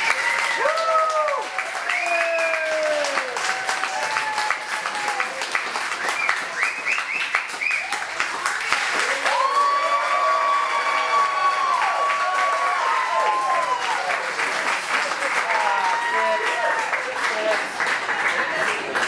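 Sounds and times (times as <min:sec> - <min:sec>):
rising whoops: 0:00.0 - 0:05.3, 0:09.0 - 0:14.2
audience applauding: 0:00.0 - 0:19.0.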